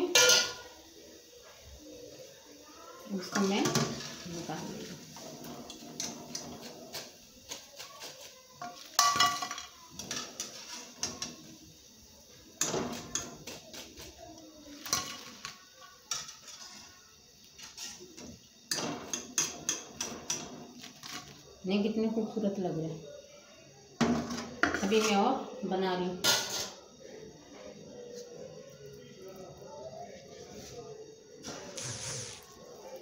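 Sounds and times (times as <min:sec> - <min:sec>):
metal skimmer clanking on pan: 0:00.1 - 0:00.6, 0:08.6 - 0:11.4.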